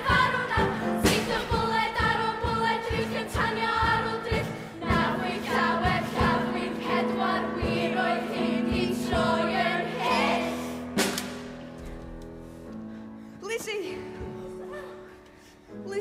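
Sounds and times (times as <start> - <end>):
children's choir singing: 0.0 - 11.1.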